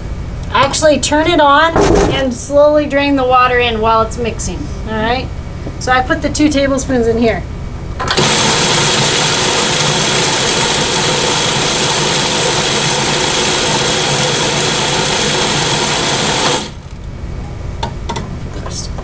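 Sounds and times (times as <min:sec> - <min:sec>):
food processor motor running: 0:08.1 - 0:16.8.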